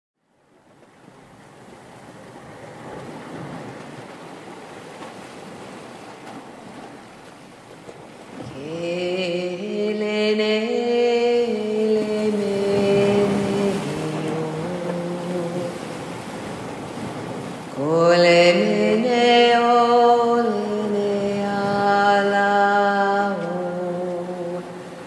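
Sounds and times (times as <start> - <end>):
ocean surf washing on beach: 0.4 - 25.0
person singing wordless notes: 8.5 - 16.0, 17.8 - 25.0.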